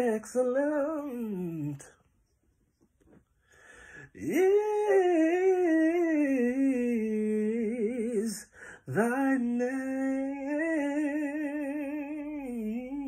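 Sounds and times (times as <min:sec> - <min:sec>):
man singing: 0:00.0 - 0:02.1, 0:04.0 - 0:13.0
breath: 0:03.4 - 0:04.1, 0:08.5 - 0:08.9.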